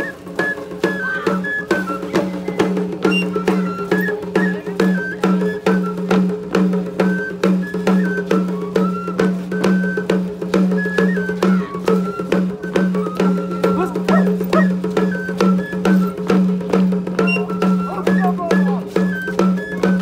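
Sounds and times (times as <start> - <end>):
flute melody: 0.0 - 20.0
quick drum beat: 9.6 - 20.0.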